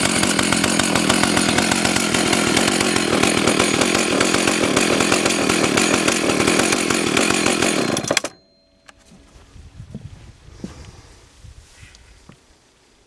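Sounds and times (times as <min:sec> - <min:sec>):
chainsaw running: 0:00.0 - 0:08.4.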